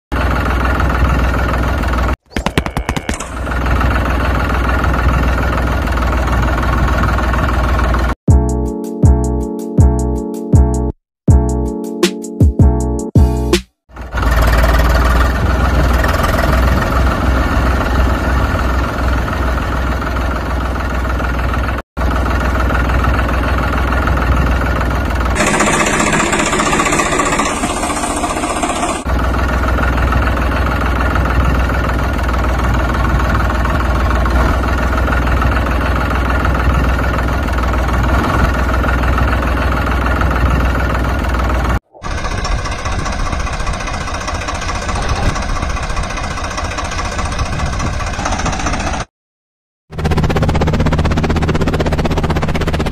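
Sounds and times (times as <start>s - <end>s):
tractor engine knocking idle: 0.1s - 8.2s, 13.9s - 49.1s.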